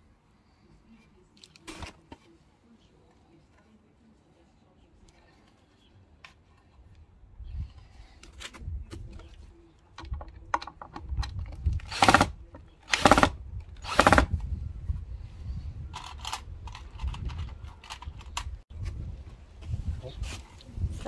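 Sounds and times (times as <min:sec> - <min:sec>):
wind rumbling on microphone: 0:07.2 - 0:09.6, 0:10.2 - 0:21.0
clicks and clatter of tools: 0:15.9 - 0:18.6.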